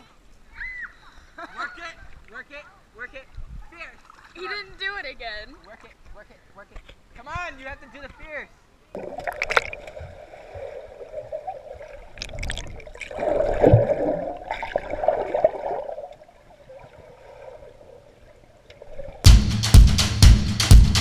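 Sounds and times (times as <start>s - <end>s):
muffled underwater sloshing: 9.0s - 19.3s
music with drum beat: 19.3s - 21.0s.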